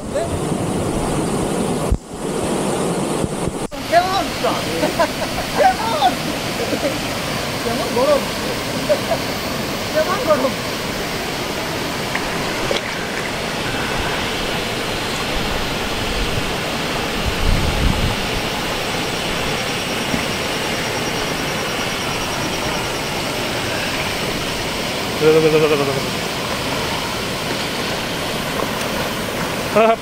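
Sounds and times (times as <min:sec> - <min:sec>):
water rushing over weir: 0:00.0 - 0:30.0
person calling out: 0:25.2 - 0:26.1.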